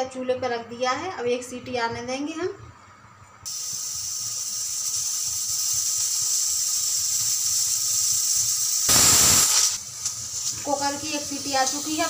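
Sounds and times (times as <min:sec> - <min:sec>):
pressure cooker whistle: 0:03.5 - 0:09.8
pressure cooker hissing: 0:03.5 - 0:12.0.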